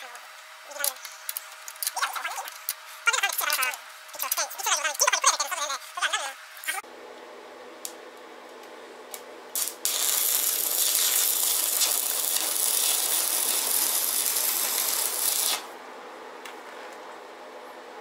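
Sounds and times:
arc welding crackling hiss: 9.5 - 15.8.

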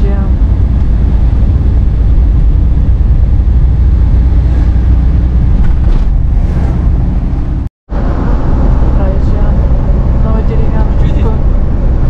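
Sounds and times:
car engine rumble: 0.0 - 12.0
tyres on the road: 0.0 - 12.0.

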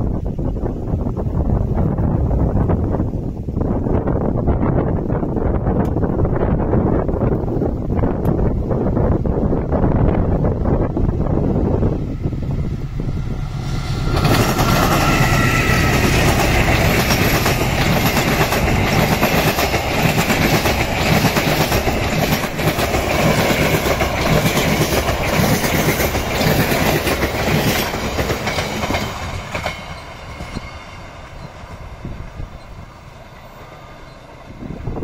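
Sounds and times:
train passing rumble: 0.0 - 35.0
high wheel squeal: 12.6 - 17.3
wheels clicking over rail joints: 14.1 - 32.0.

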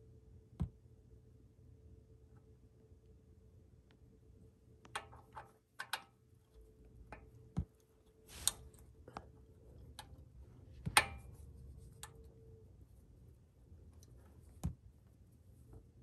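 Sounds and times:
faint steady hum: 0.0 - 16.0
light metal clicks and taps: 4.8 - 12.4.

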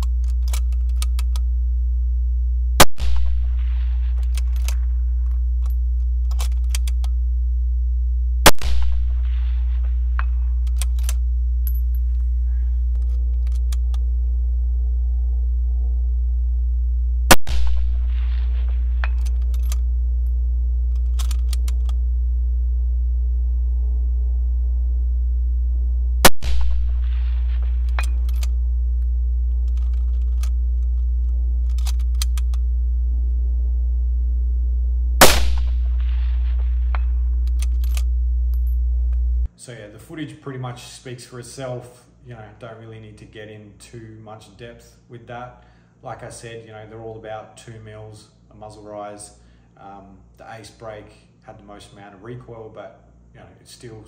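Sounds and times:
rifle handling clicks: 0.0 - 1.5, 4.2 - 7.2, 10.2 - 12.2, 13.0 - 14.0, 19.0 - 19.8, 20.9 - 22.0, 27.8 - 28.6, 29.6 - 32.6, 36.9 - 38.7
steady low hum: 0.0 - 54.0
loud rifle shot: 2.8 - 4.2, 8.5 - 10.5, 17.3 - 19.2, 26.2 - 28.1, 35.2 - 37.2.

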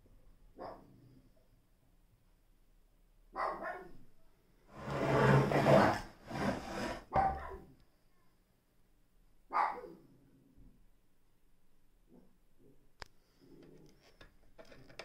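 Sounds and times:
dog barking: 0.6 - 0.9, 3.3 - 4.0, 7.1 - 7.7, 9.5 - 10.0.

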